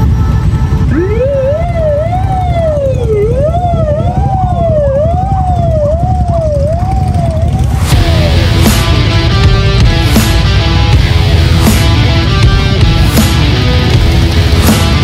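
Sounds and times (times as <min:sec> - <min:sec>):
police siren wailing: 0:00.0 - 0:11.0
motorcycle engines rumbling: 0:00.0 - 0:15.0.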